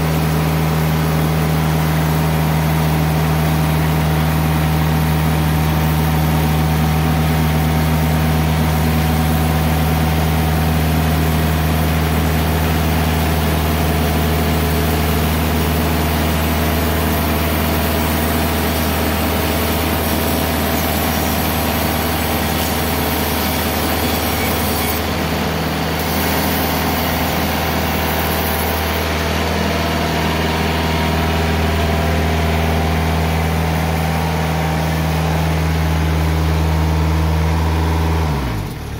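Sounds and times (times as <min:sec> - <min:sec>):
sawmill engine running: 0:00.0 - 0:38.9
band blade sawing a log: 0:17.1 - 0:29.5.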